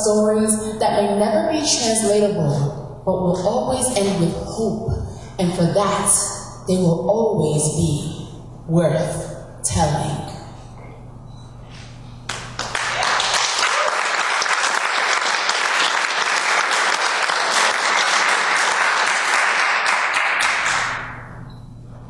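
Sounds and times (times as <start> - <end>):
audience applauding: 12.3 - 21.1.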